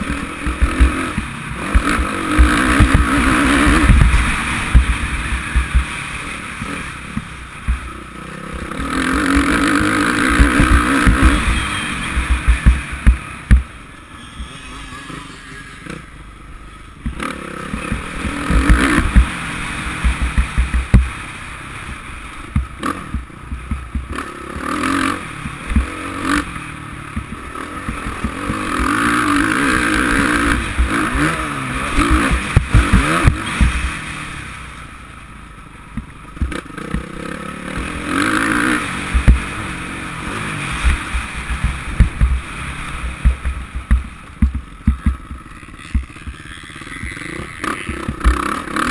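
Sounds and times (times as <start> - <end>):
knocks from bumps: 0.0 - 5.9, 9.3 - 13.8, 17.0 - 19.4, 20.0 - 21.1, 32.0 - 33.9, 39.1 - 39.5, 40.8 - 42.4, 43.0 - 48.9
motocross engine revving: 0.0 - 35.3, 36.3 - 48.9.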